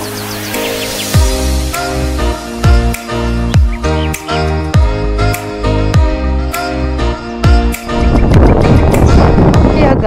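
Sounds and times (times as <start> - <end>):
synth chords: 0.0 - 9.7
deep bass kick hits: 7.5 - 9.8.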